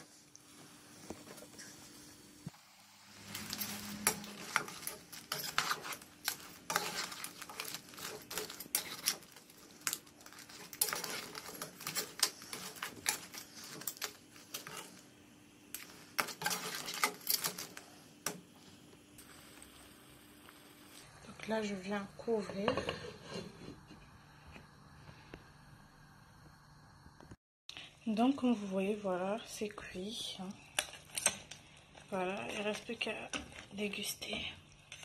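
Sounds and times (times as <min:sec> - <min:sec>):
spoon scraping and knocking a pan: 0:03.2 - 0:15.0, 0:15.7 - 0:18.6, 0:22.4 - 0:24.1.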